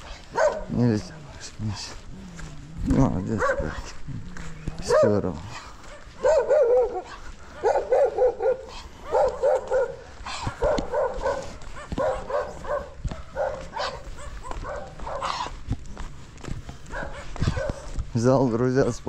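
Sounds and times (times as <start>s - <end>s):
dog barking: 0.0s - 0.9s, 2.9s - 4.0s, 4.8s - 15.6s, 16.8s - 18.0s.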